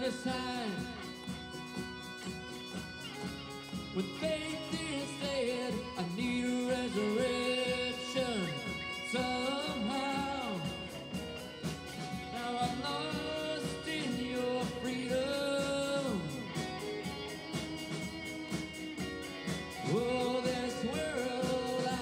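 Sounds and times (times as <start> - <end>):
acoustic guitar: 0.0 - 22.0
band accompaniment: 0.0 - 22.0
people singing: 4.0 - 11.0, 12.3 - 16.6, 19.8 - 22.0.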